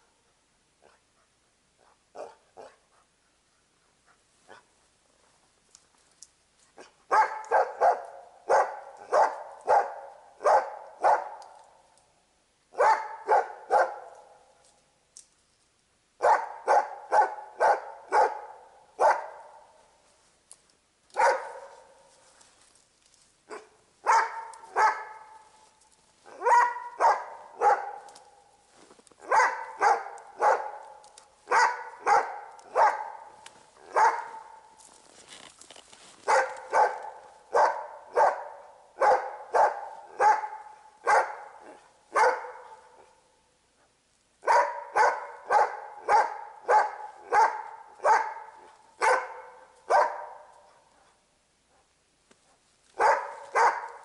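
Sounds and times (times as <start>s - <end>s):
dog barking: 1.8s - 3.1s, 6.8s - 11.5s, 12.7s - 14.5s, 16.2s - 19.8s, 21.1s - 22.1s, 23.5s - 25.5s, 26.2s - 28.5s, 29.2s - 34.8s, 36.2s - 43.2s, 43.8s - 54.0s.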